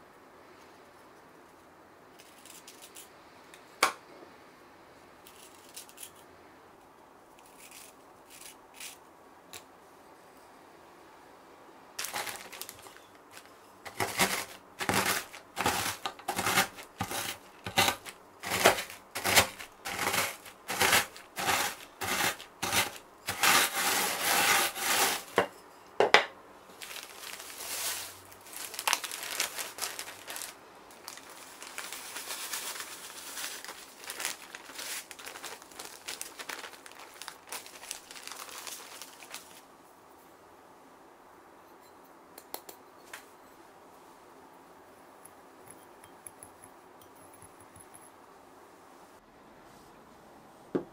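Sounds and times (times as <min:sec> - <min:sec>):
cookies crunching in plastic bag: 0:12.0 - 0:25.4, 0:26.7 - 0:39.6.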